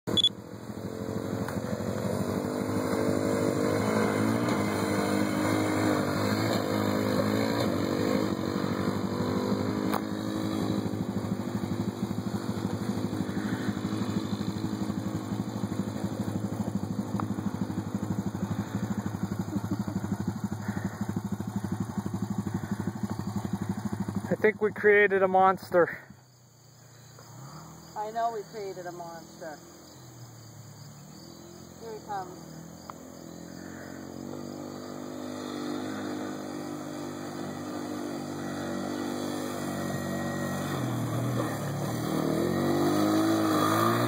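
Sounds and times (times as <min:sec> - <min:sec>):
quad bike engine revving: 0:00.0 - 0:26.1, 0:31.7 - 0:44.0
engine idling: 0:00.1 - 0:27.3.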